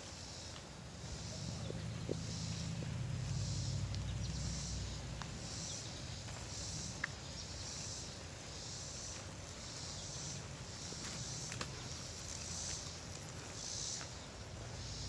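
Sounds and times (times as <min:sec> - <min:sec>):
insects buzzing: 0:00.0 - 0:15.0
low rumble: 0:01.1 - 0:06.3.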